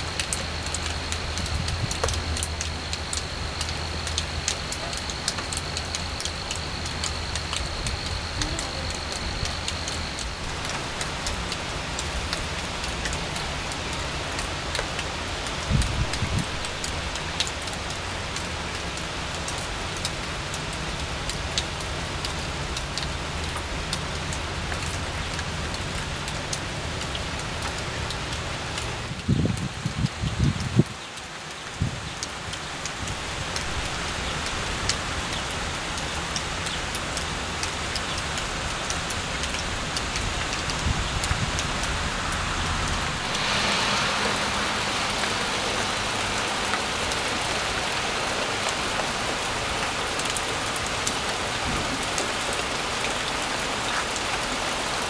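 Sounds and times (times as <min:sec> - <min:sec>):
faint high whine: 0:00.0 - 0:11.6, 0:41.6 - 0:49.5
rain on leaves and pond: 0:00.0 - 0:55.0
sharp ticks of raindrops: 0:00.0 - 0:55.0
low rumble: 0:40.1 - 0:48.7.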